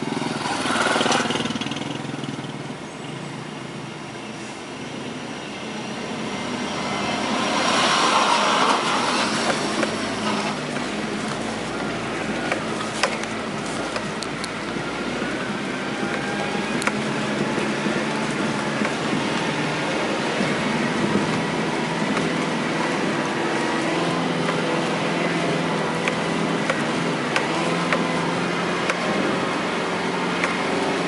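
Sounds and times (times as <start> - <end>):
tyre noise on dirt road: 0.0 - 2.9, 4.3 - 31.0
car engine hum: 0.0 - 31.0
car knocking and rattling: 7.4 - 31.0.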